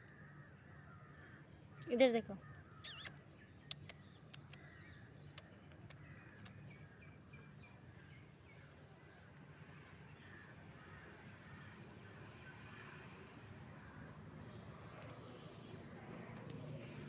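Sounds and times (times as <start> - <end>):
faint outdoor ambience: 0.0 - 17.0
short bird chirps: 2.8 - 6.6.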